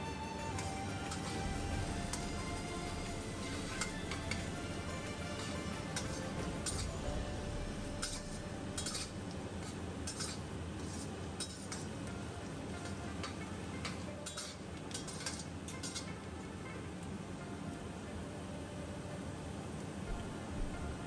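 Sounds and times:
metal spatula scraping a wok: 0:03.0 - 0:11.9.

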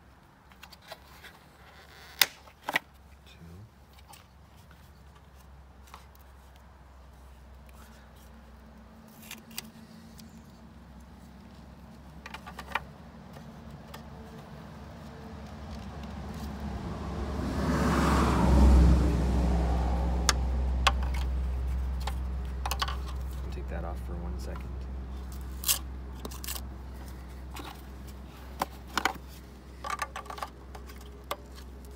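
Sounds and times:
car engine rumble: 0:03.0 - 0:31.9
plastic parts clicking: 0:28.6 - 0:31.7.

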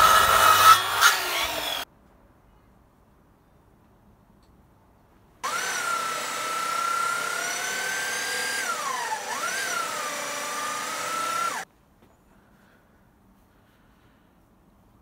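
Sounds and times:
electric drill boring wood: 0:00.0 - 0:01.8, 0:05.4 - 0:11.6.

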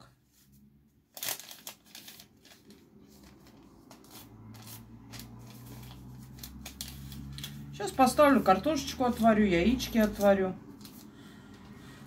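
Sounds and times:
packaging rustling and crinkling: 0:01.1 - 0:07.7.

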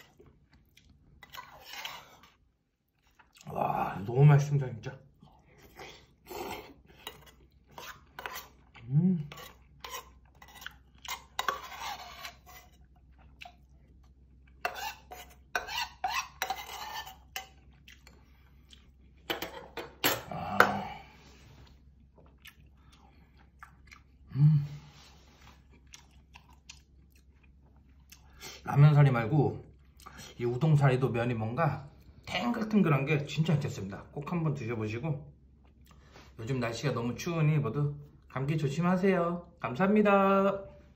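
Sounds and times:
slurping and chewing: 0:00.0 - 0:03.6, 0:05.2 - 0:19.3, 0:21.2 - 0:24.3, 0:24.9 - 0:28.6
utensils scraping metal bowl: 0:01.2 - 0:02.4, 0:06.4 - 0:12.8, 0:14.6 - 0:17.6.

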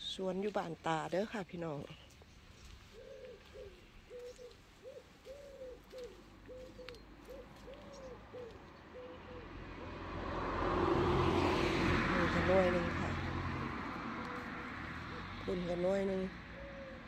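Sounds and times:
bird calling low notes: 0:02.6 - 0:09.9
engine noise: 0:09.4 - 0:16.6.

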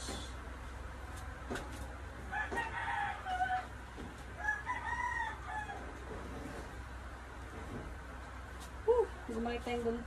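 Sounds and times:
rooster crowing: 0:02.3 - 0:03.8, 0:04.4 - 0:06.0.

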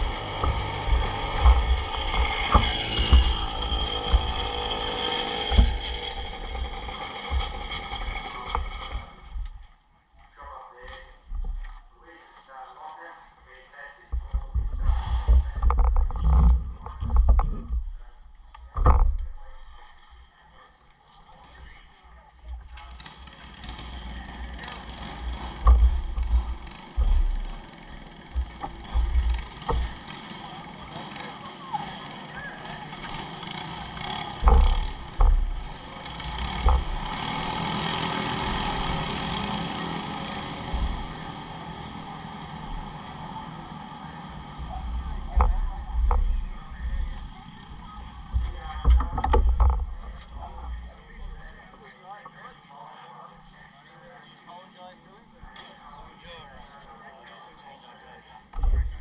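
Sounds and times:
short low thumps: 0:00.0 - 0:04.8, 0:25.5 - 0:30.1, 0:40.4 - 0:41.5
kart engines idling: 0:00.0 - 0:09.8, 0:22.3 - 0:54.0, 0:54.6 - 0:59.0.

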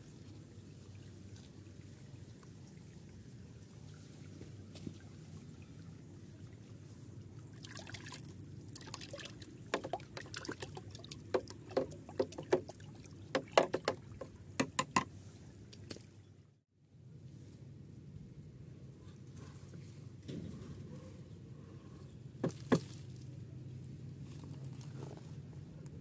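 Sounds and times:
stick stirring water in bucket: 0:07.6 - 0:15.1.

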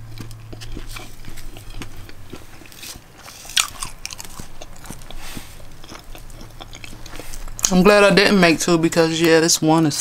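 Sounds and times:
loud crunch: 0:00.0 - 0:07.8
chewing crisp food: 0:00.0 - 0:08.1.

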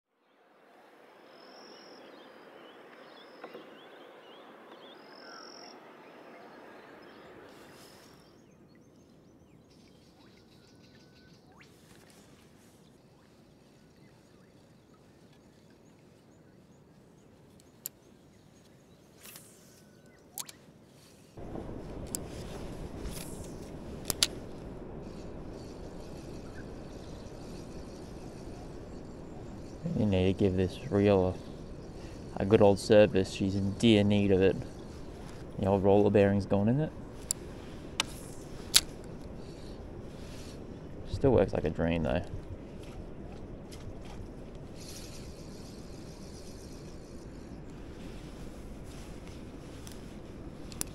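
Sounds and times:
fishing reel grinding: 0:23.0 - 0:30.0, 0:44.6 - 0:48.6.

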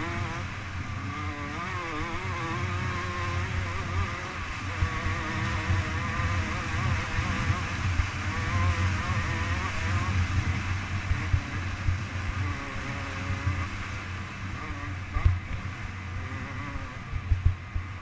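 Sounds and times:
dirt bike engine revving: 0:00.0 - 0:18.0
wind buffeting camera: 0:00.0 - 0:18.0.

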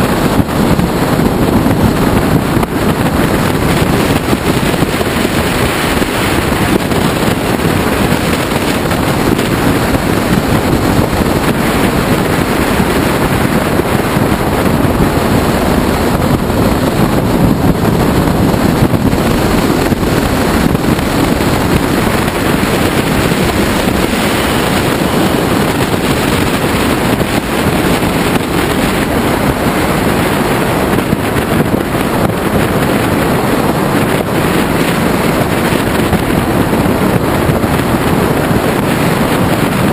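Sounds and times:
motorcycle engine running: 0:00.0 - 0:39.9
wind rush on microphone: 0:00.0 - 0:39.9.

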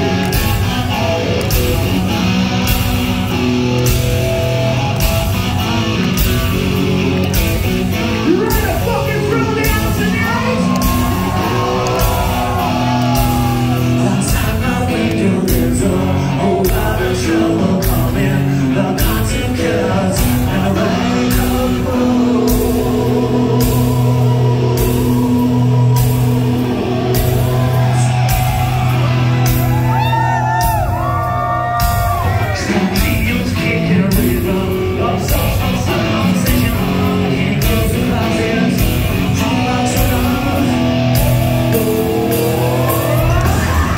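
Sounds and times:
drum beat: 0:00.0 - 0:16.1, 0:20.2 - 0:34.6
distorted electric guitars: 0:00.0 - 0:43.9
live hard rock band: 0:00.0 - 0:43.9
man singing: 0:08.2 - 0:12.6, 0:13.2 - 0:28.2, 0:31.6 - 0:43.9.

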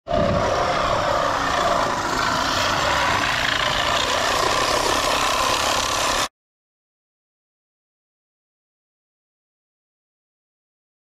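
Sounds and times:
reciprocating saw cutting steel pipe: 0:00.1 - 0:06.3.

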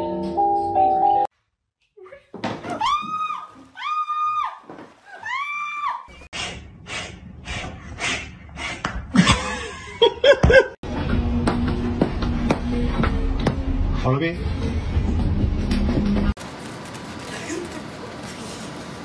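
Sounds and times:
person laughing in breathy bursts: 0:09.1 - 0:10.8.

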